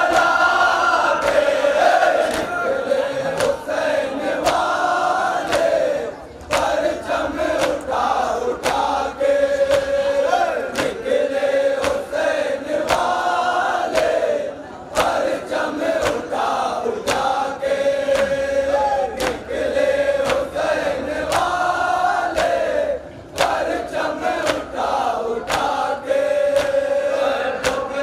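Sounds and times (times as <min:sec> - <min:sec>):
men chanting a lament: 0:00.0 - 0:28.0
hands slapping chests: 0:05.5 - 0:05.7, 0:06.5 - 0:06.8, 0:08.6 - 0:08.9, 0:10.7 - 0:11.0, 0:23.4 - 0:23.6, 0:25.5 - 0:25.8.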